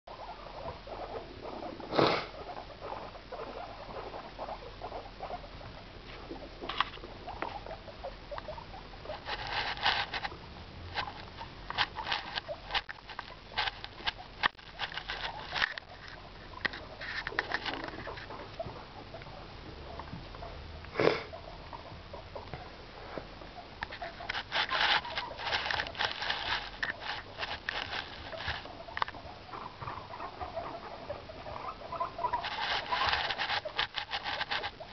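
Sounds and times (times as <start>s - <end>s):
guinea pigs scratching and rustling: 0.1s - 20.6s, 21.3s - 34.9s.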